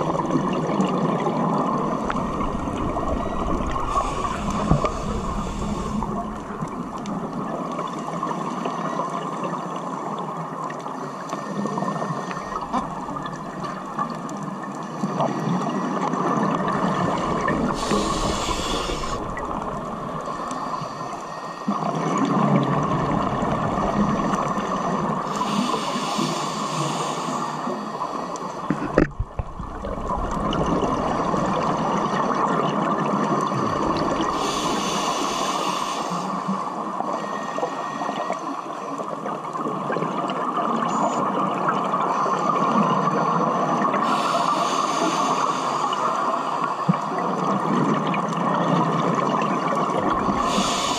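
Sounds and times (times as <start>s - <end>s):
bubbling water underwater: 0.0s - 10.9s, 11.5s - 25.6s, 27.6s - 34.7s, 46.9s - 50.9s
scuba regulator hissing inhale: 2.0s - 6.8s, 16.8s - 21.9s, 23.8s - 28.6s, 33.8s - 38.4s, 44.0s - 46.3s, 50.1s - 50.9s.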